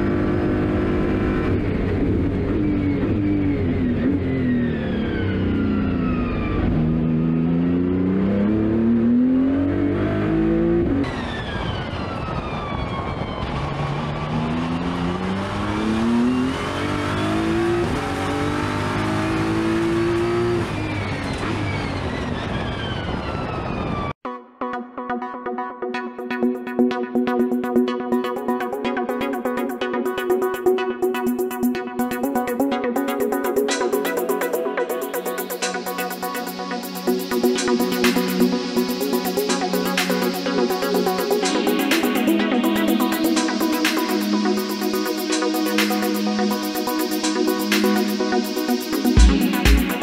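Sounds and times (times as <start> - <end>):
race car engine accelerating: 0.0 - 11.1, 13.6 - 22.2.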